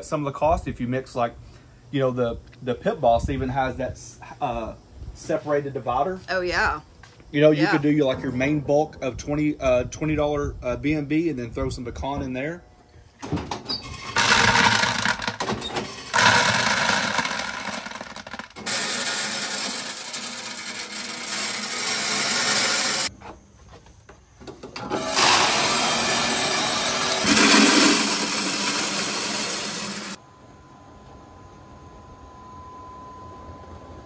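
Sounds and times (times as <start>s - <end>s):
pellets pouring into hopper: 14.0s - 23.1s, 27.2s - 30.2s.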